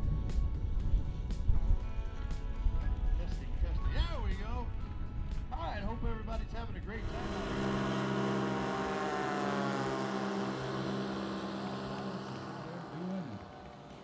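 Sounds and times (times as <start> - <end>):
model plane engine droning: 7.0 - 14.0.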